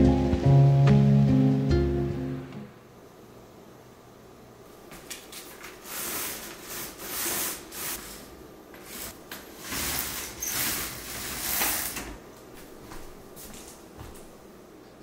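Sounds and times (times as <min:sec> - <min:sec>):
fabric roller blind swishing: 0:05.1 - 0:12.2.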